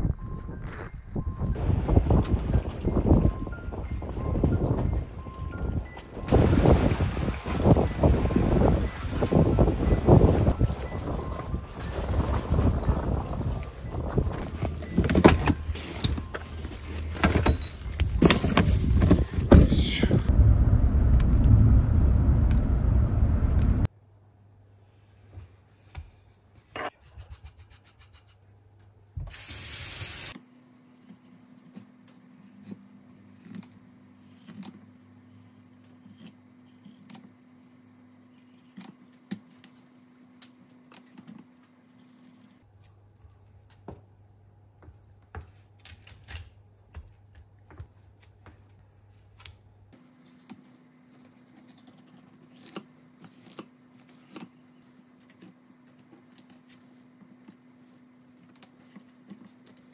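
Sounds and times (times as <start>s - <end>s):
low steady hum: 0.0s - 24.5s.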